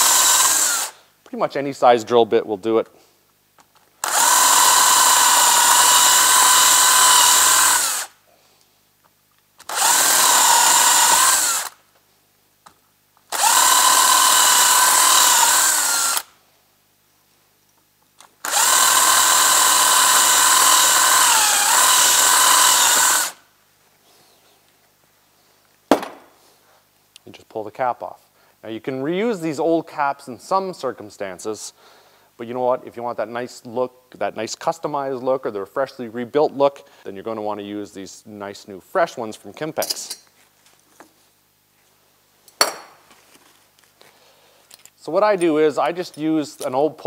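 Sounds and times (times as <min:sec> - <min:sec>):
cordless drill whining: 0:00.0 - 0:01.0, 0:04.0 - 0:08.1, 0:09.6 - 0:11.8, 0:13.3 - 0:16.3, 0:18.4 - 0:23.4
single knock: 0:25.9 - 0:26.3.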